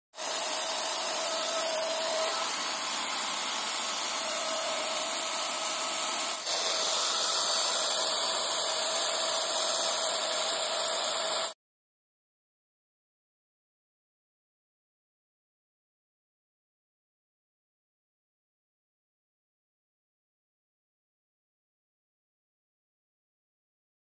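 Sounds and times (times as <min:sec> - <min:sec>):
paint sprayer motor hum: 0:00.2 - 0:11.6.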